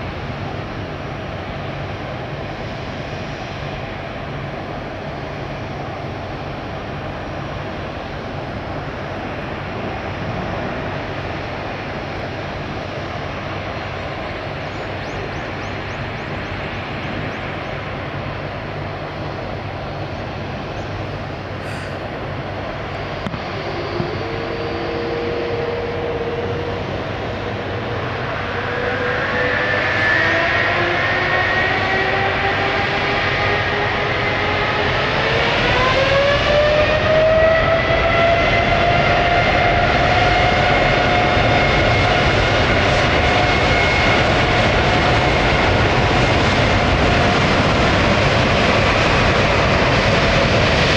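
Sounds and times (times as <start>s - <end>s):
jet engines running: 0.0s - 50.9s.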